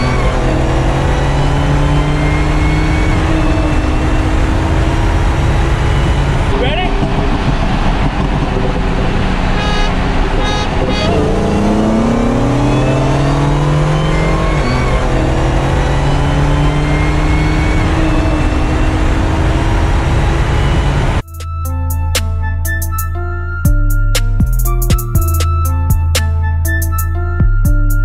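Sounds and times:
car engine at full throttle: 0.0s - 21.2s
wind roar: 0.0s - 21.2s
music: 8.4s - 11.4s, 21.2s - 28.0s.

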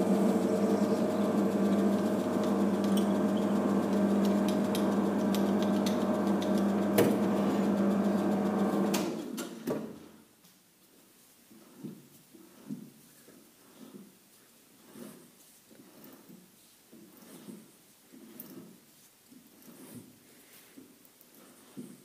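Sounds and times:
lathe motor and gear hum: 0.0s - 9.2s.

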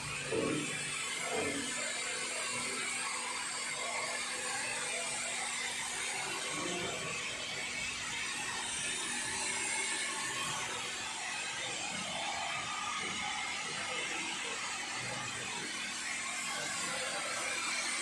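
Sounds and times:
pump motor humming: 0.0s - 18.0s.

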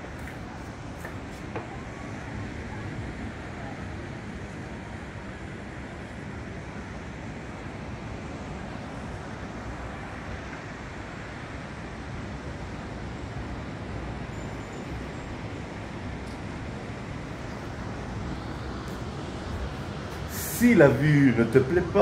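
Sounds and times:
distant surf: 0.0s - 22.0s
wind: 0.0s - 22.0s.

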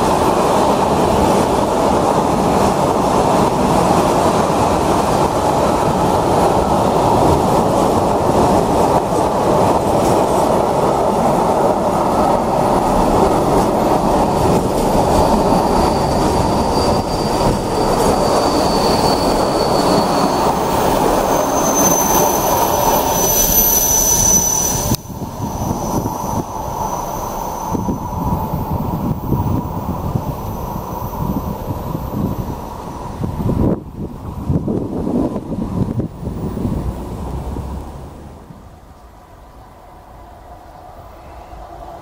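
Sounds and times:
train wheels rumbling on rail: 0.0s - 42.0s
wheel squeal: 14.1s - 33.0s.

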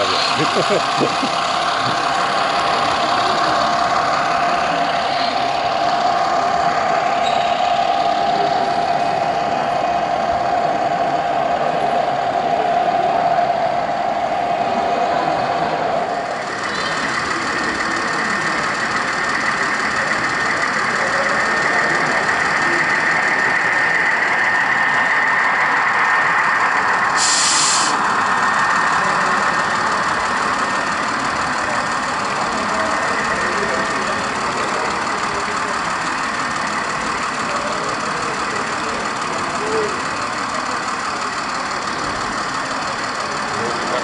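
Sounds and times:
busy hall background: 0.0s - 44.0s
model trains mechanical hum: 0.0s - 44.0s
short hiss: 27.2s - 28.0s.

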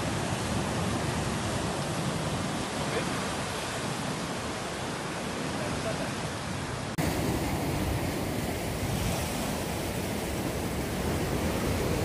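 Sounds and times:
surf breaking against rocks: 7.0s - 12.0s.

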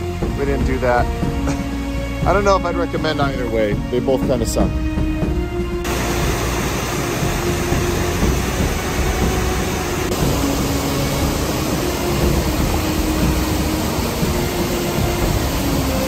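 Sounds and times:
stream rushing over boulders: 5.9s - 16.0s.

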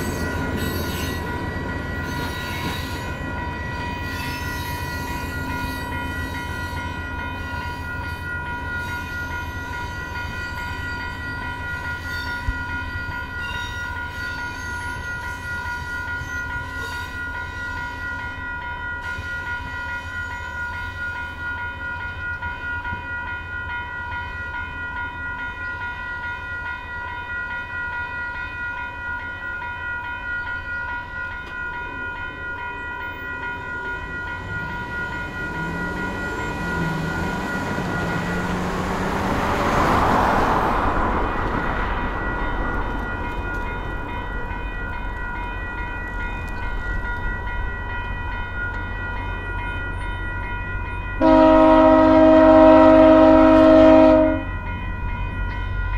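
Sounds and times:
railway crossing warning bell: 0.0s - 55.9s
car driving past: 34.9s - 42.1s.

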